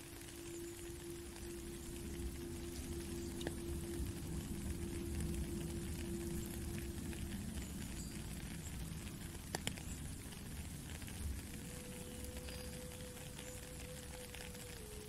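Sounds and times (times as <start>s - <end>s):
rain falling on a puddle: 0.0s - 15.0s
soft low flute note: 0.2s - 7.6s.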